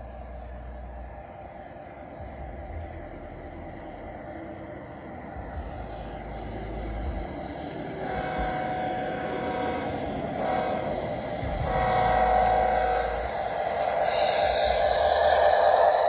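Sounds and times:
rumble of wheels and motor: 0:00.0 - 0:16.0
model train horn: 0:08.0 - 0:14.9.

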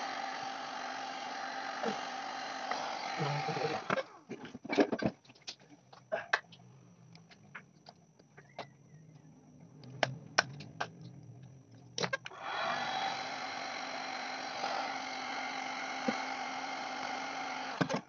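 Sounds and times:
heat gun blowing: 0:00.0 - 0:04.0, 0:12.3 - 0:17.8.

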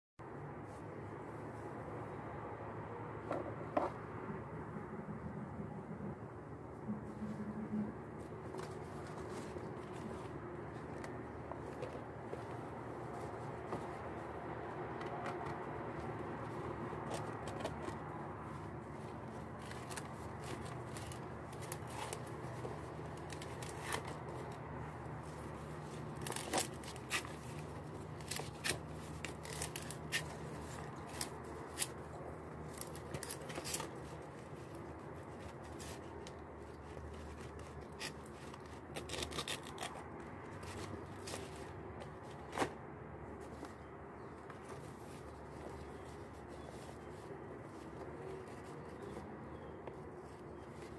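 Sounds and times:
knife cutting leaves: 0:37.4 - 0:41.4
leaf fibres snapping and tearing: 0:38.9 - 0:40.1.

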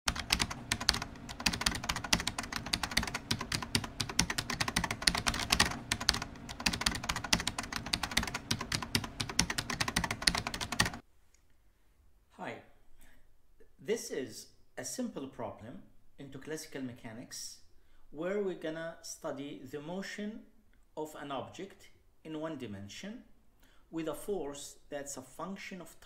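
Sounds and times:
rapid keyboard typing: 0:00.1 - 0:11.0.

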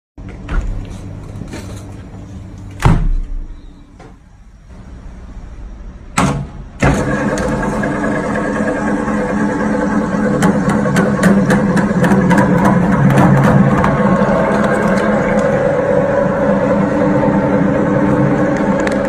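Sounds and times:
meat grinder motor humming: 0:06.8 - 0:19.0.

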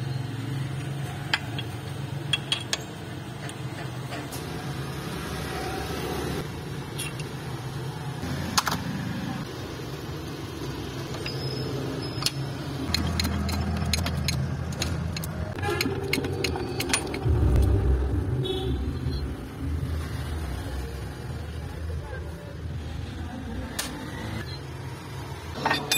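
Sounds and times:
metallic clinks and taps: 0:01.3 - 0:03.9
low rumble: 0:16.9 - 0:21.8
steady low hum: 0:17.1 - 0:21.4.

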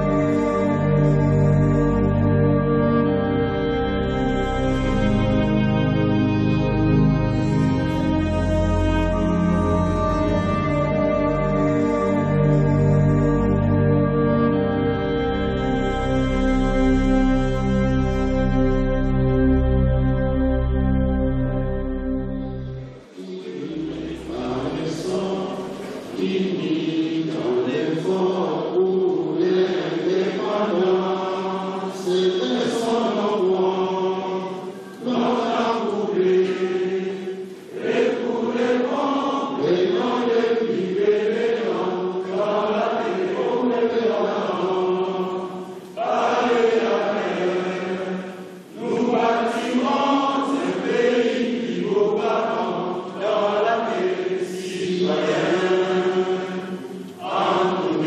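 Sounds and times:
group of voices chanting: 0:23.2 - 0:58.0.

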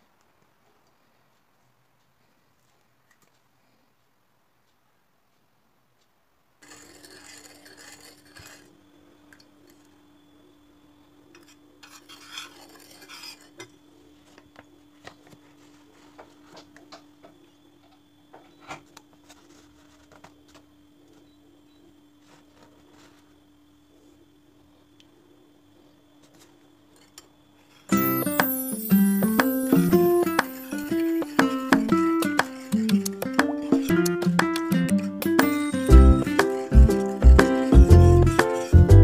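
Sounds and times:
metal spoon scraping in bowl: 0:06.6 - 0:08.7, 0:11.4 - 0:13.7
steady low hum: 0:08.0 - 0:39.0.

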